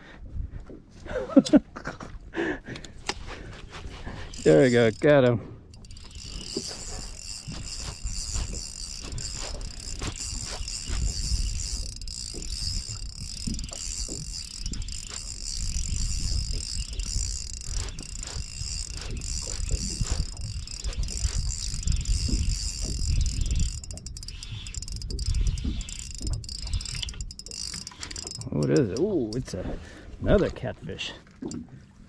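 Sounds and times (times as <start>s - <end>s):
fishing reel whirring and ticking: 4.0s - 29.6s.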